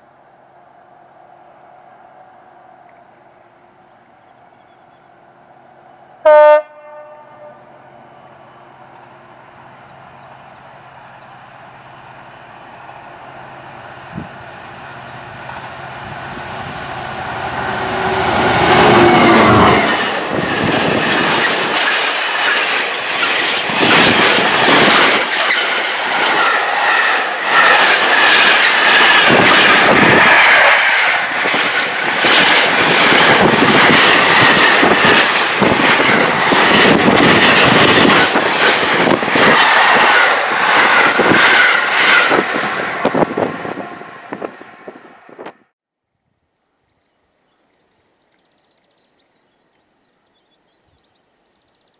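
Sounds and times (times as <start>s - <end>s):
diesel locomotive engine: 0.0s - 45.8s
wheel clatter over rail joints: 19.9s - 43.3s.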